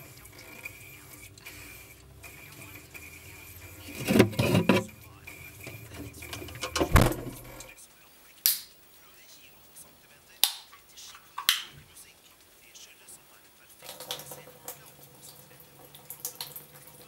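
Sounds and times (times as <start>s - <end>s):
refrigerator hum: 0.0s - 7.7s
heavy thump: 6.8s - 7.6s.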